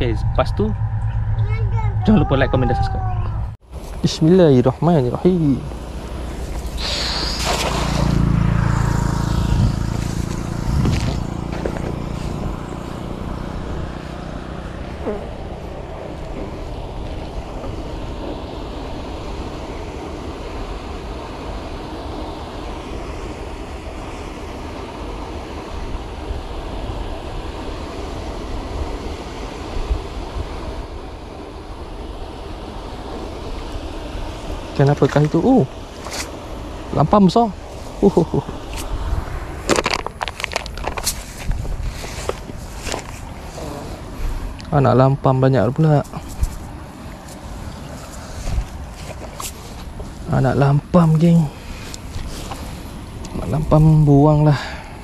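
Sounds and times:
vehicle engine running: 0.0s - 6.8s, 7.4s - 18.4s
wind buffeting microphone: 0.0s - 55.0s.

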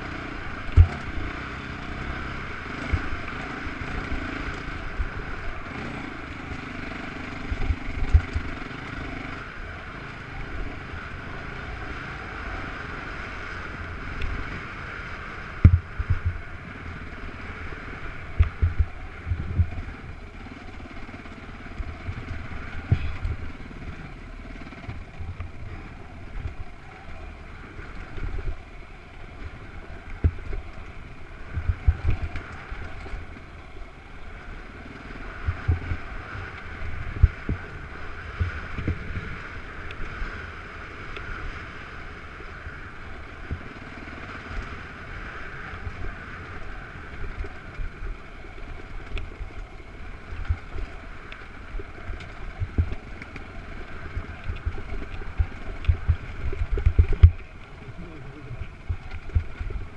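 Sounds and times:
off-road vehicle engine running: 0.0s - 59.9s
low thuds from bumps: 0.7s - 1.3s, 15.6s - 16.5s, 18.3s - 19.8s, 54.2s - 59.9s
wind buffeting microphone: 15.6s - 16.6s, 18.1s - 20.4s, 52.1s - 59.9s.

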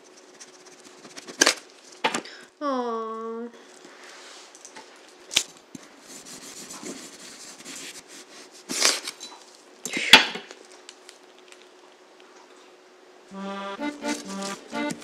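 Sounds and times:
gloved hands rustling on dough: 5.1s - 9.2s, 13.8s - 15.0s.

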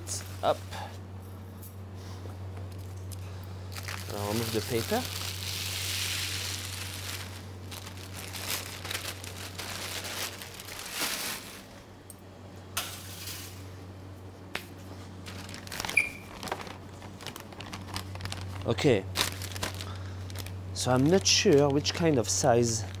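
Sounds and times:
steady low hum: 0.0s - 23.0s
baking paper crinkling: 3.7s - 11.9s, 15.2s - 23.0s.

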